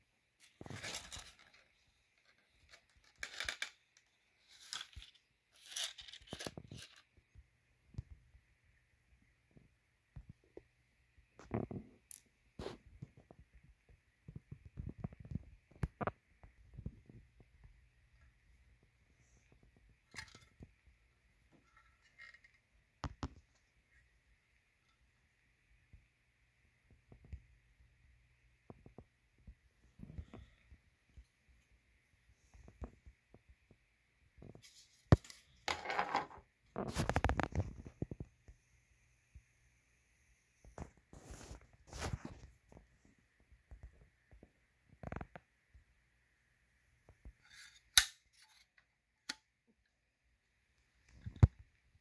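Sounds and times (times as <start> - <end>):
plastic parts rattling and scraping: 0.4 - 7.1, 19.2 - 20.8, 21.5 - 23.4.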